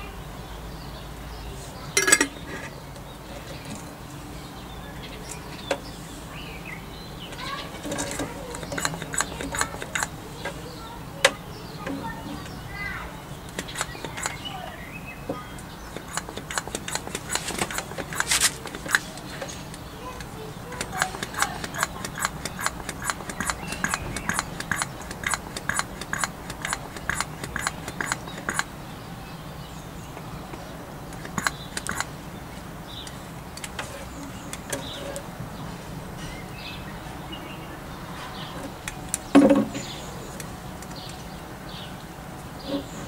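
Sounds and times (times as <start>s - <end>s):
rapid even clicking: 7.3s - 12.0s, 13.4s - 14.6s, 15.6s - 28.8s, 30.1s - 32.2s.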